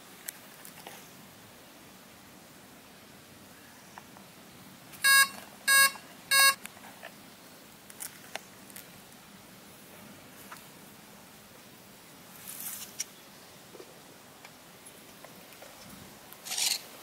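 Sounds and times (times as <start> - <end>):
short electronic beeps: 5.0 - 6.6.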